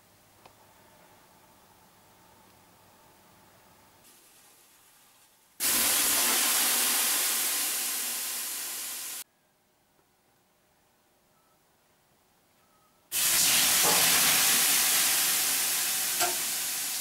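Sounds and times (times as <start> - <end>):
water hissing on hot stones: 4.1 - 9.2, 13.1 - 17.0.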